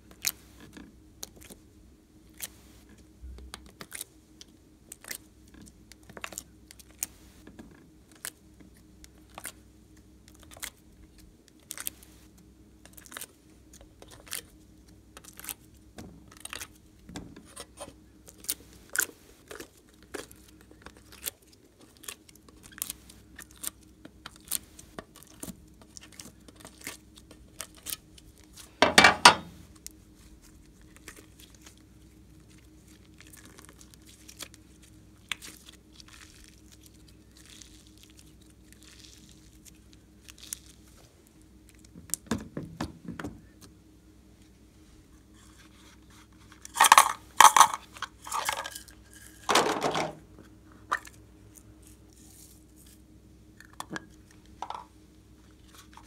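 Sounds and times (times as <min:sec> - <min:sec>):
slime squelch: 0:17.5 - 0:28.8, 0:29.7 - 0:41.9.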